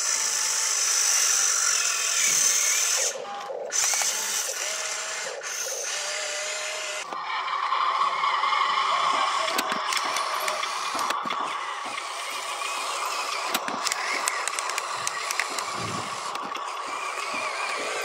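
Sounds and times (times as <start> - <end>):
toy truck motor whining: 0.0 - 18.0.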